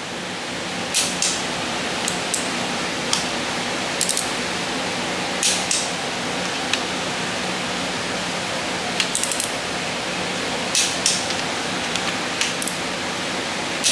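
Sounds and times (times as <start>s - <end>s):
torque wrench clicks: 4.0s - 4.3s, 9.0s - 9.6s, 10.8s - 12.8s.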